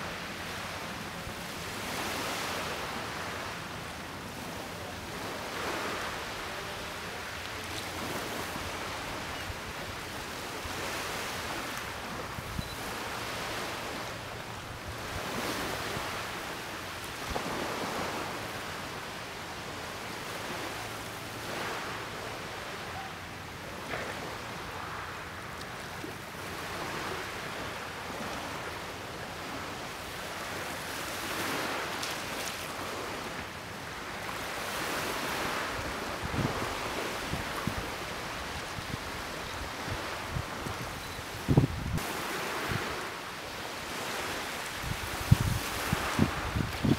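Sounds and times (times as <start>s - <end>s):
small waves washing ashore: 0.0s - 46.9s
steady wind noise: 32.8s - 46.9s.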